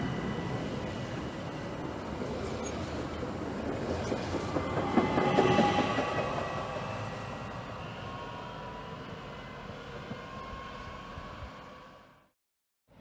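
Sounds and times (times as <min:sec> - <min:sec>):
train wheels rumbling and clattering: 0:00.0 - 0:07.1
electric train whine: 0:00.0 - 0:12.4.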